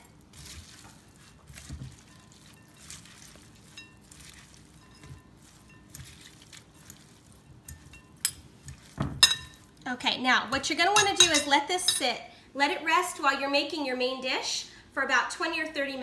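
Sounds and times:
metal clinking against glass bowl: 1.9s - 6.2s, 7.6s - 9.6s, 11.0s - 12.0s.

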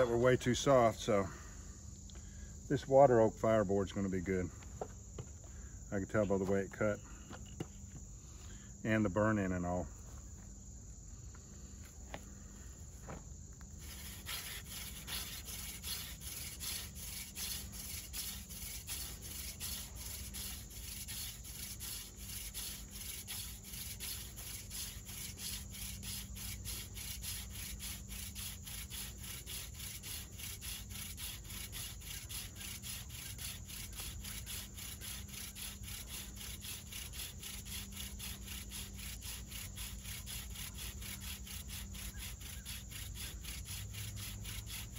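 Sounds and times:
hand drill rubbing on wood: 13.1s - 44.9s.

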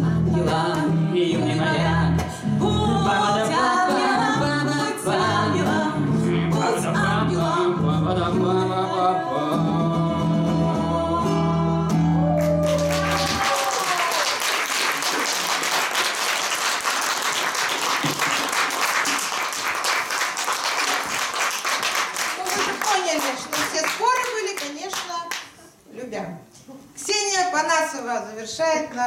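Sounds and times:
strummed acoustic guitar: 0.0s - 12.1s
woman and man singing: 0.0s - 13.2s
audience applauding: 12.2s - 25.4s.

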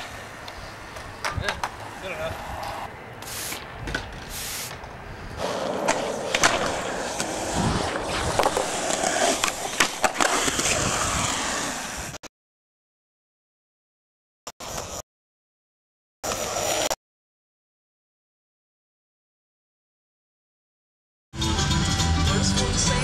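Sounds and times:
skateboard clacking: 0.0s - 2.0s, 3.9s - 10.8s
skateboard wheels rolling on concrete: 0.0s - 12.3s, 14.6s - 15.0s, 16.2s - 17.0s.

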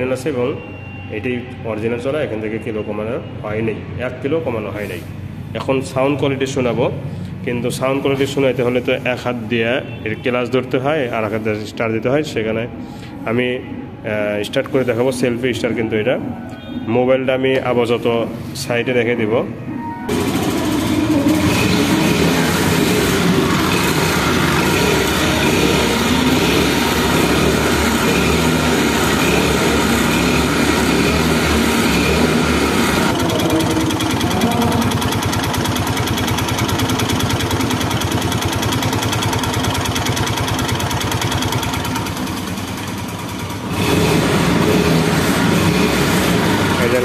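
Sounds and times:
scooter engine running: 20.1s - 47.0s.

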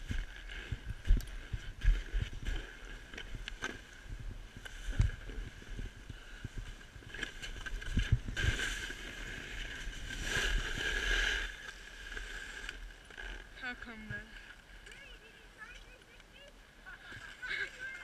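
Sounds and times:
snowboard scraping over snow: 0.0s - 13.4s.

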